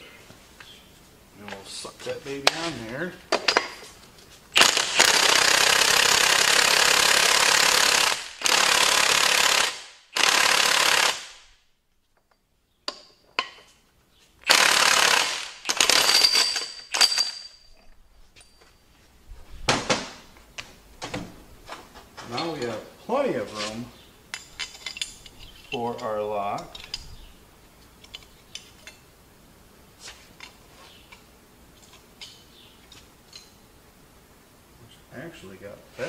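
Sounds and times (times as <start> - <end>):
tools clicking and clinking: 3.3 - 4.8, 15.6 - 18.8, 22.2 - 22.8, 24.3 - 27.2, 27.8 - 29.1, 30.4 - 33.6
impact wrench hammering: 4.6 - 11.4, 14.4 - 17.5.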